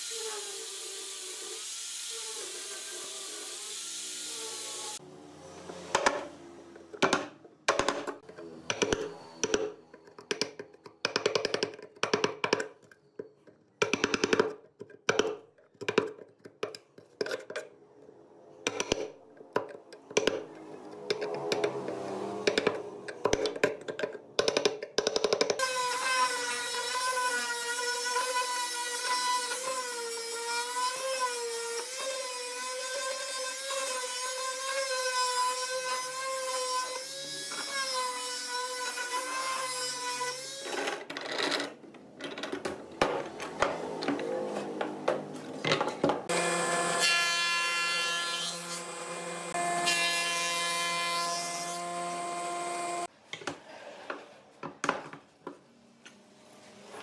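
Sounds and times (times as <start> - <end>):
palm sander motor whine: 46.3 - 47.0.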